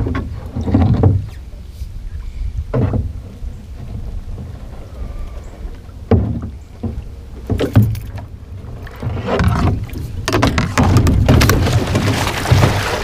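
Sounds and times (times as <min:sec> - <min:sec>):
water sounds: 0:00.0 - 0:13.0
knocks against boat: 0:02.7 - 0:03.3, 0:06.1 - 0:08.3, 0:08.9 - 0:13.0
rustling and scraping: 0:02.7 - 0:13.0.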